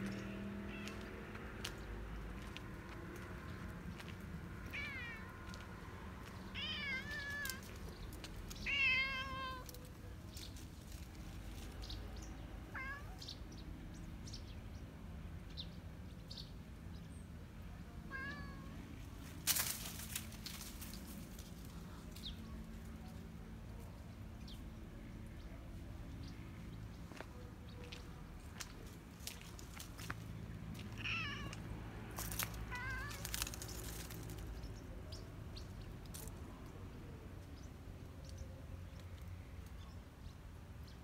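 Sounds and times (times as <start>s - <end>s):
cat meowing: 4.6s - 5.4s, 6.6s - 7.7s, 8.6s - 9.8s, 18.1s - 18.7s, 31.0s - 31.6s, 32.7s - 33.4s.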